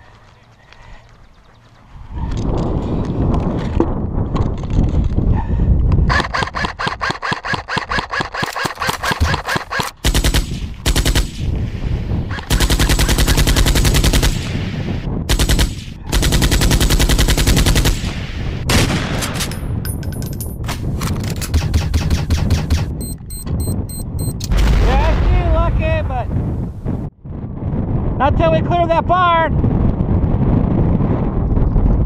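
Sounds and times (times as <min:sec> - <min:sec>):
automatic gunfire bursts: 0:06.1 - 0:11.4, 0:12.4 - 0:14.4, 0:15.3 - 0:18.1.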